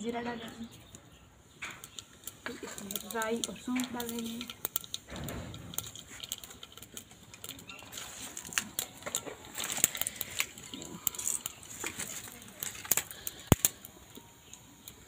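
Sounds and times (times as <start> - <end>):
seeds spluttering in hot oil: 0.0 - 15.0.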